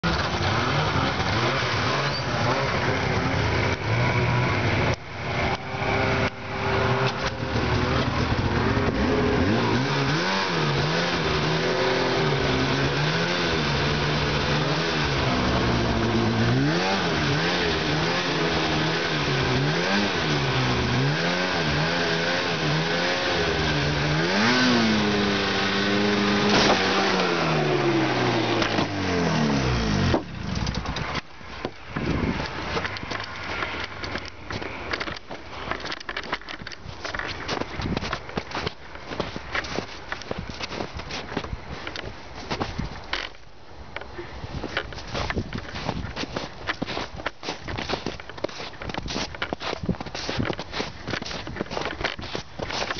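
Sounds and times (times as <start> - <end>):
snowmobile engine revving: 0.0 - 31.2.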